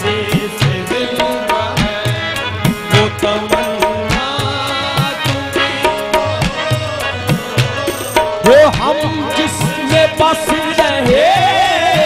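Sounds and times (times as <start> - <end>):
harmonium notes: 0.0 - 12.0
tabla drumming: 0.0 - 12.0.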